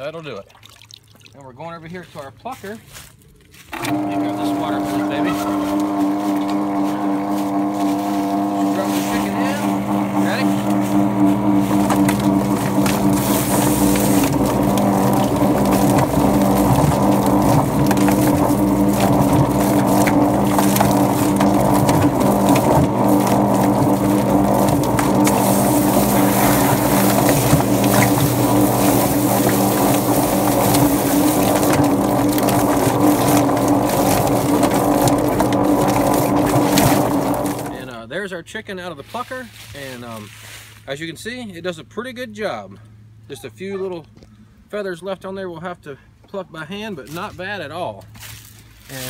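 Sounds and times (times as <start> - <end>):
chicken plucker motor humming: 3.7 - 38.0
hose spraying water: 3.9 - 37.8.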